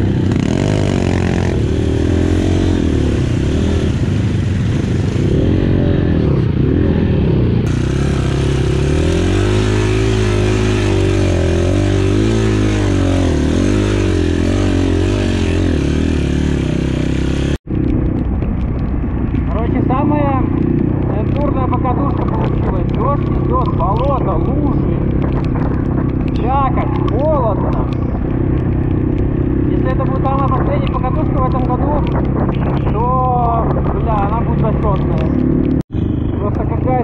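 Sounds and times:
dirt bike engine revving: 0.0 - 17.6.

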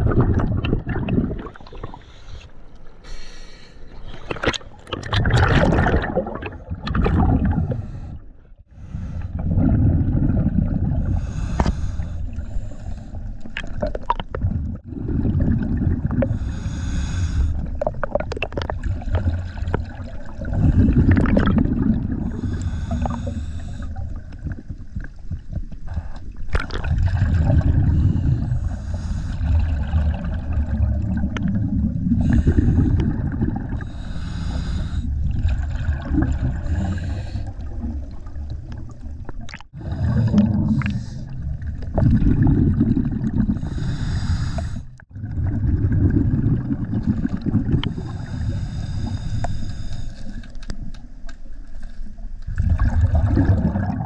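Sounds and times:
gurgling bubbles underwater: 0.0 - 2.4, 4.0 - 8.2, 9.0 - 51.3, 52.0 - 54.0
regulator hiss on inhale: 1.9 - 4.0, 11.1 - 13.2, 16.3 - 17.6, 22.3 - 24.0, 33.8 - 35.1, 36.7 - 37.6, 43.6 - 45.0, 47.9 - 50.6.

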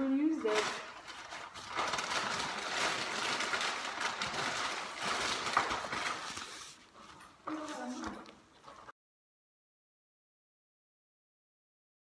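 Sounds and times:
rustling crinkling handling noise: 0.3 - 8.9.

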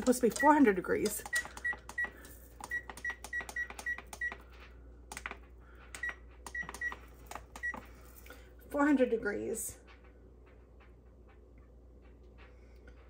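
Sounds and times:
oven control panel beeping: 0.0 - 4.4, 6.0 - 7.8.

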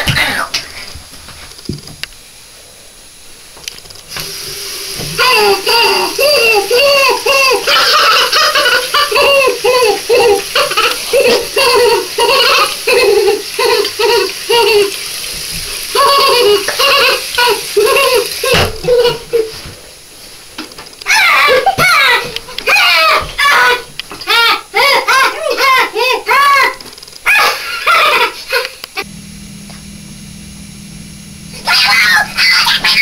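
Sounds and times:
faucet running into sink: 4.1 - 19.2
boy vocalizing: 5.2 - 8.4, 23.0 - 26.8, 31.6 - 33.0.

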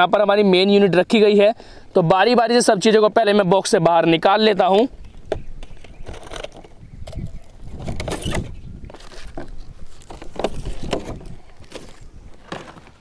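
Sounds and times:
plastic and paper rustling: 7.4 - 13.0.

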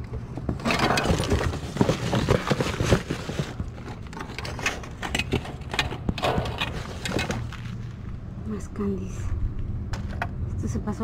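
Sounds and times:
cardboard box knocking and scraping: 0.4 - 3.8
plastic bags crinkling: 0.8 - 4.6.

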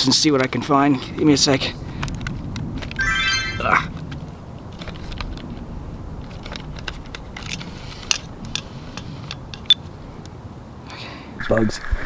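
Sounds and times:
wind rumble on microphone: 1.1 - 3.0, 3.6 - 10.1.

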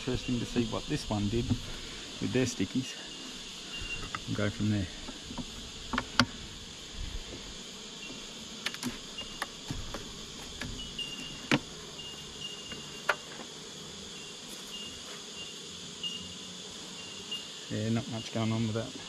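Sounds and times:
beehive box being handled: 0.0 - 19.0
high insect drone: 0.0 - 19.0
hive tool clicking on wood: 5.0 - 6.4, 8.6 - 11.8, 12.7 - 13.5.

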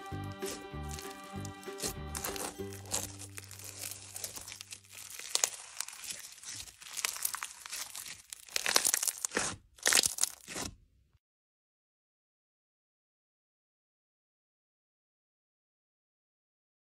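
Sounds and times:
slime crackling and popping: 0.3 - 10.8.

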